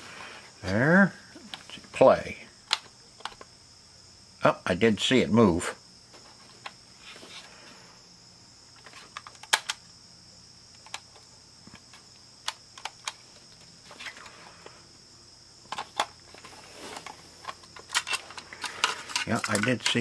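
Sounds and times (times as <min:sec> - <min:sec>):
high-pitched hiss: 0:00.0 - 0:20.0
plastic clicks and taps: 0:10.7 - 0:13.2
rustling: 0:12.8 - 0:14.8, 0:15.6 - 0:20.0.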